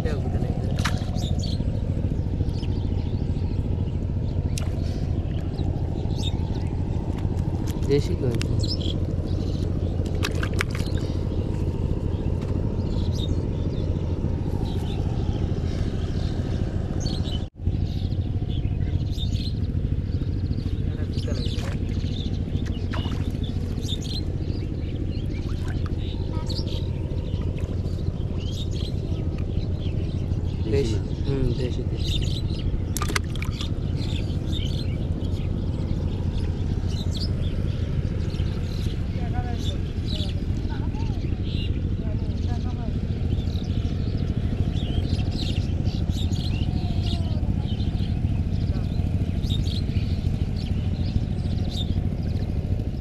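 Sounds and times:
birds chirping: 0.0 - 53.0
motor droning: 0.0 - 53.0
steady low rumble: 0.0 - 53.0.

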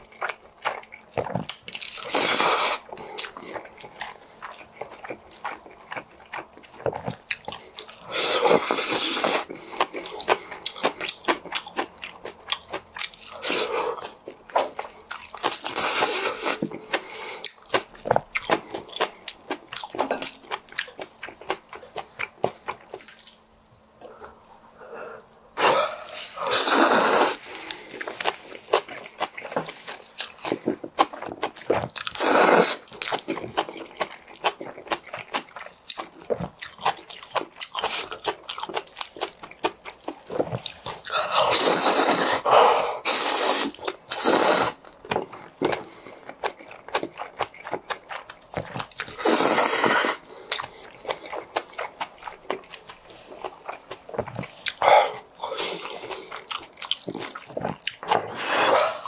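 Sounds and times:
wet chewing and lip smacking: 0.0 - 24.4, 25.1 - 59.0
loud noodle slurps: 2.0 - 2.8, 15.7 - 16.6, 25.6 - 27.5, 32.1 - 32.9, 41.1 - 44.8, 49.1 - 50.3, 58.1 - 59.0.

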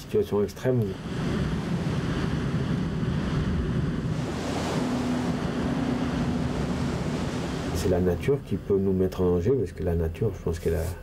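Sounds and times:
faint steady hum: 0.0 - 11.0
sea water washing past hull: 0.5 - 9.5
wind on microphone: 0.8 - 8.7.

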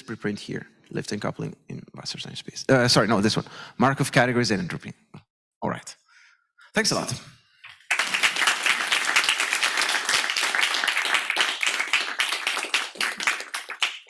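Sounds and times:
audience applauding: 7.8 - 14.0.

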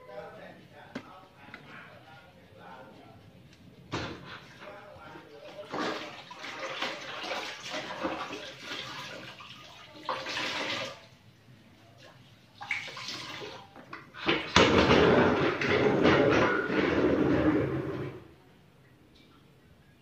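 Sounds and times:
mop swishing in bucket water: 4.2 - 11.2, 12.0 - 18.2
water splashing into bucket: 5.6 - 11.1, 12.6 - 16.2
bucket scraping rumble: 14.2 - 18.3.

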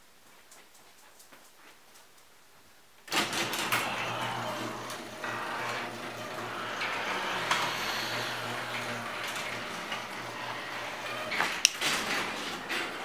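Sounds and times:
garage door motor hum: 3.1 - 13.0
garage door rumbling: 3.1 - 13.0.

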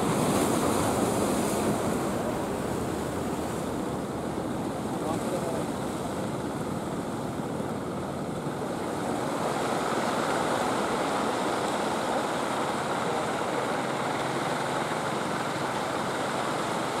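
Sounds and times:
surf washing against concrete: 0.0 - 17.0
boat motor running: 8.4 - 17.0.

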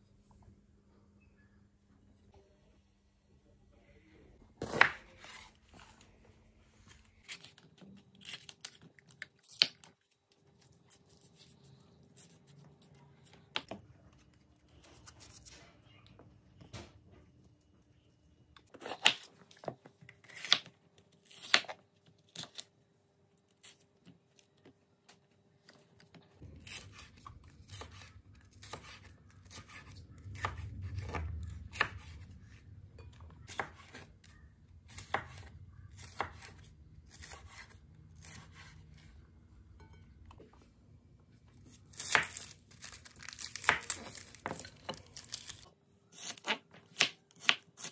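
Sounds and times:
low hum: 26.4 - 37.1
knife chopping on cutting board: 34.9 - 36.6.

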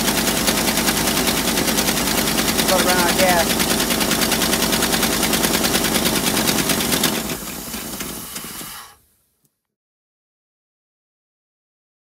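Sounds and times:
loud engine running: 0.0 - 8.9.

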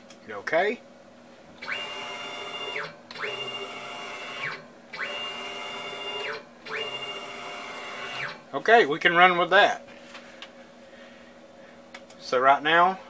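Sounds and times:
stepper motor whine: 1.6 - 8.5.

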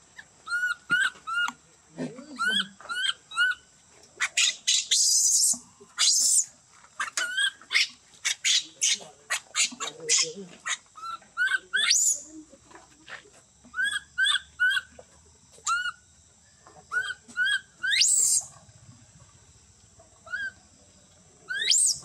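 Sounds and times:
infant monkey crying: 2.2 - 3.6, 4.2 - 12.3.

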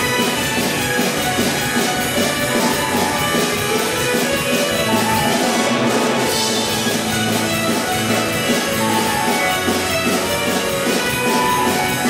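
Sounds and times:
drum kit: 0.0 - 12.0
plucked psalteries playing lively tune: 0.0 - 12.0.

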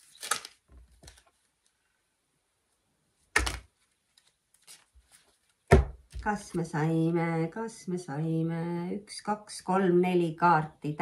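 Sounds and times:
card slapping on table: 3.4 - 3.7.

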